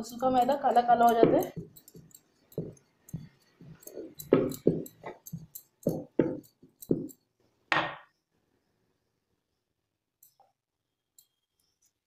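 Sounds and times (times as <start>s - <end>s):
rolling pin rolling dough: 0.0s - 7.2s
bangles clicking: 0.0s - 7.3s, 11.2s - 12.0s.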